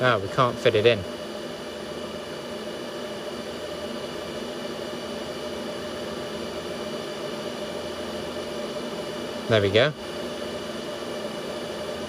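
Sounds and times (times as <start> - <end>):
server cooling fans running: 0.0 - 12.0.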